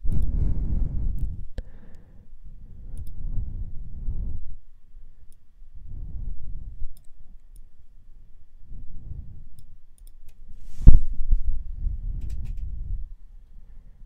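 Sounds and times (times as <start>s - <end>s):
low rumbling noise: 0.0s - 1.8s, 10.6s - 14.0s
computer mouse clicks: 2.9s - 3.2s, 6.9s - 7.7s, 9.5s - 10.4s, 12.2s - 12.7s.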